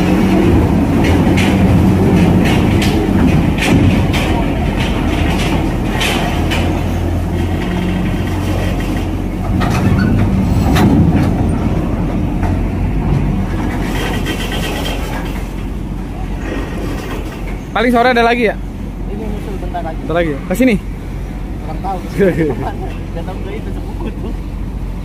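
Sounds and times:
metallic knocks and clanks: 0.0 - 15.8
heavy vehicle engine running: 0.0 - 25.0.

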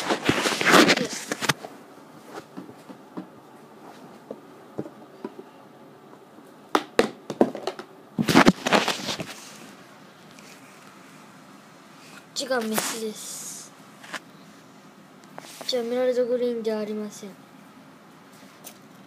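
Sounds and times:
loud rustling scrape: 0.0 - 1.6, 8.2 - 9.8.

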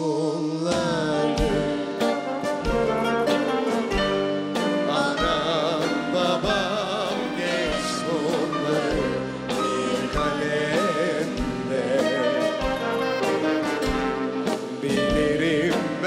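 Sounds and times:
vocal duet singing: 0.0 - 2.2, 4.8 - 13.5, 14.8 - 16.0
live band with brass: 0.5 - 16.0.

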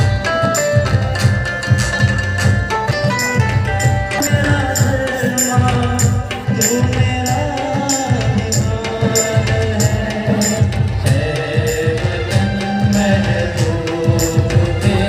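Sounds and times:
harmonium: 0.0 - 15.0
steady percussion beat: 0.0 - 15.0
man singing over loudspeakers: 4.1 - 15.0.

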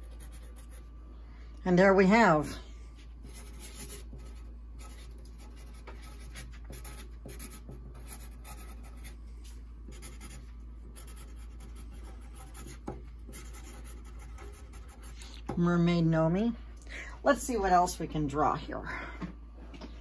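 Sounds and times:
marker scratching on paper: 3.2 - 9.2, 9.9 - 15.2.

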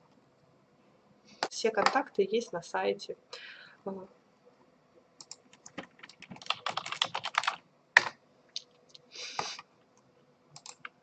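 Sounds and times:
keyboard typing: 5.2 - 8.7, 10.5 - 11.0.

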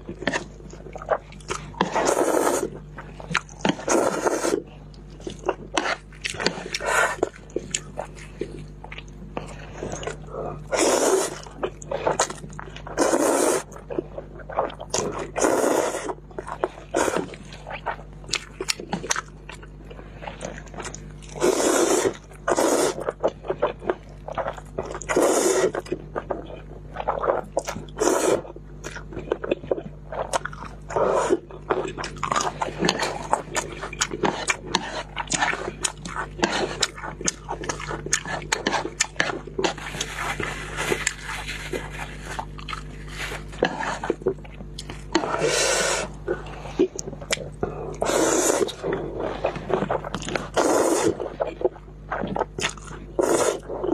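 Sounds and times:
wet chewing and lip smacking: 0.0 - 53.9
slurping noodles: 1.1 - 2.8, 3.6 - 4.6, 9.6 - 13.8, 14.5 - 17.9, 21.3 - 23.8, 24.4 - 28.6, 30.2 - 44.4, 45.0 - 53.9.

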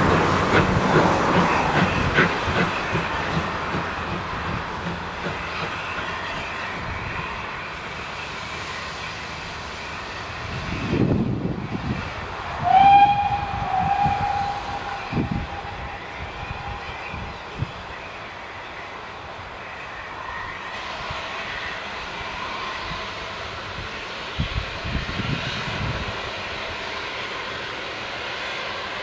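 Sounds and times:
steam locomotive chuffing: 0.0 - 18.5
steam whistle: 12.6 - 17.3.

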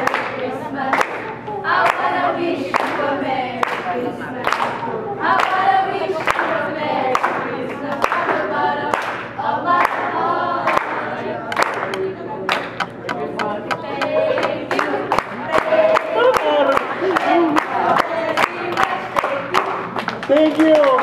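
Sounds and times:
young voices singing a carol: 0.0 - 19.9
hand claps in time: 11.5 - 21.0.

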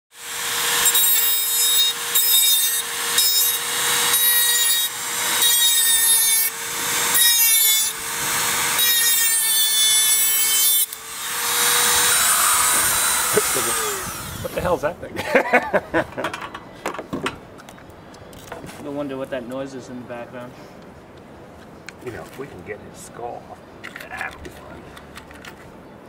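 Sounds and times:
rotary tool motor whine: 0.2 - 14.6
sanding drum grinding blade: 0.2 - 14.8.

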